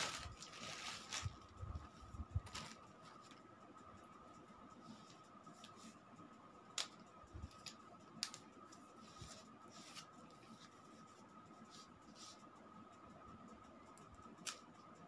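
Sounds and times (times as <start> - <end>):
cardboard scraping and rustling: 0.0 - 1.4.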